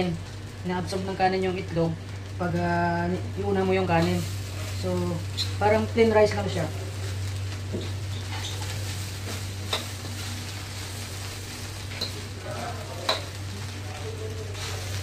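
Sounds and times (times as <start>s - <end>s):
rice sizzling in a wok: 0.0s - 15.0s
spatula scraping a pan: 7.8s - 13.4s.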